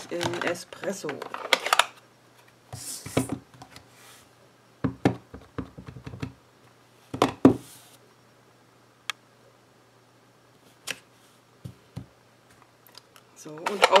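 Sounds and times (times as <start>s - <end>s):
block knocking on surface: 4.8s - 6.4s.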